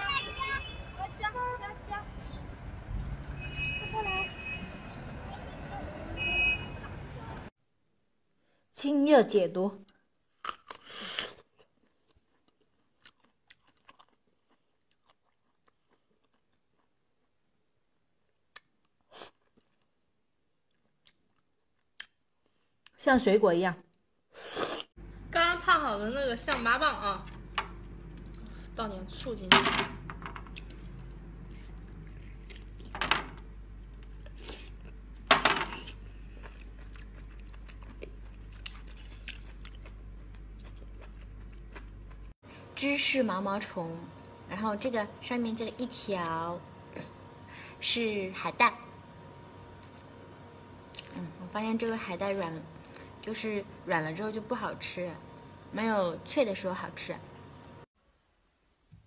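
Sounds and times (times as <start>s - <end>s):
person slurping: 24.4s - 24.9s
chewing clicks: 36.3s - 42.3s.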